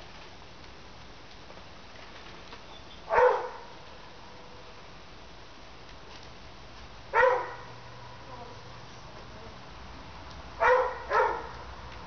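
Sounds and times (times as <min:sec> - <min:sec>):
dog barking: 0:03.1 - 0:03.7, 0:07.1 - 0:07.7, 0:10.6 - 0:11.5.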